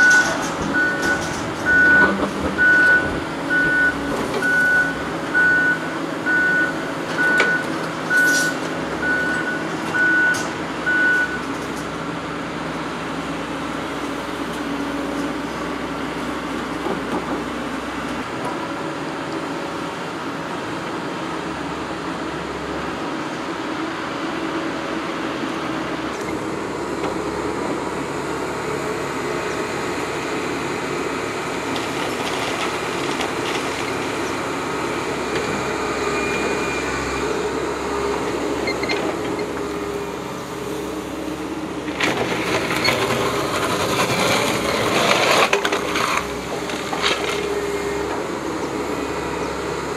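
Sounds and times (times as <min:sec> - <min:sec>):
excavator engines running: 0:00.0 - 0:49.9
excavator bucket scraping stony soil: 0:41.8 - 0:47.7.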